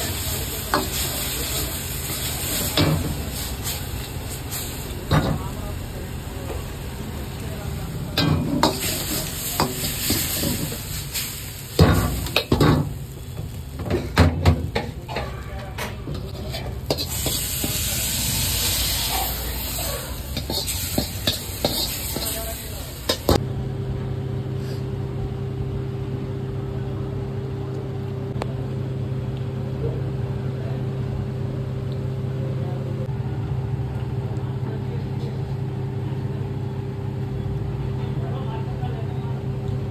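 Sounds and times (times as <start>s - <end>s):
oil sizzling: 0.0s - 23.4s
metal ladle scraping a wok: 13.9s - 23.4s.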